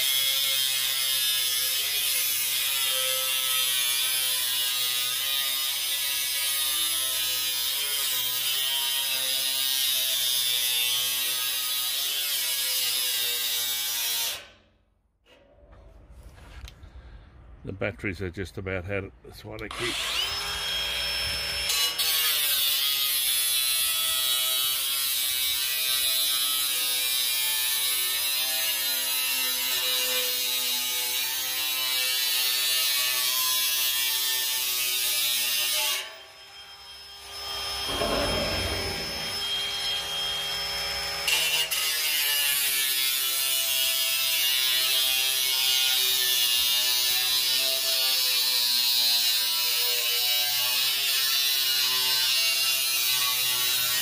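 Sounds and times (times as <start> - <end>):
angle grinder cutting metal: 0.0 - 14.5, 19.7 - 54.0
low rumble: 37.5 - 40.0.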